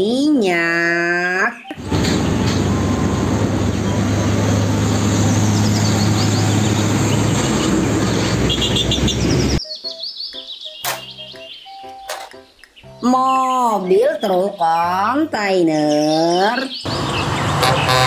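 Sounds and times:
birds chirping: 0.4 - 18.0
truck diesel engine passing: 1.7 - 9.6, 16.9 - 18.0.

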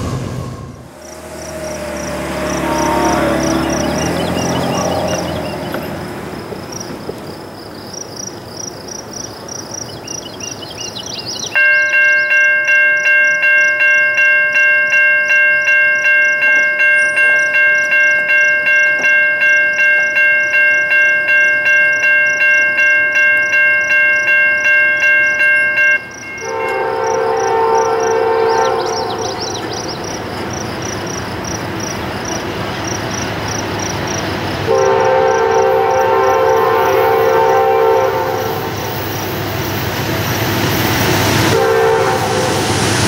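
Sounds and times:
insect chirping: 0.9 - 14.0, 21.8 - 35.6
bell ringing: 11.6 - 27.0.

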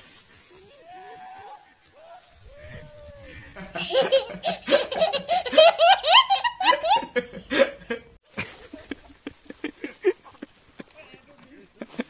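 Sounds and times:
child laughing hard: 3.5 - 7.3.

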